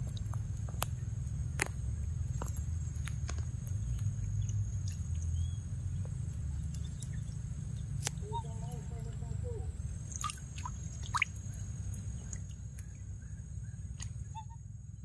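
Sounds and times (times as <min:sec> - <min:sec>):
steady low rumble: 0:00.0 - 0:15.0
monkey lapping water: 0:10.1 - 0:11.5.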